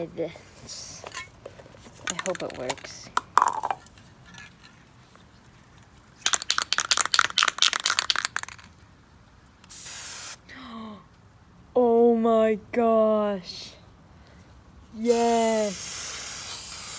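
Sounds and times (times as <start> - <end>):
spray can ball rattling: 2.0 - 4.8, 6.2 - 8.8, 15.1 - 16.9
spray paint hiss: 9.6 - 10.4, 15.0 - 16.9.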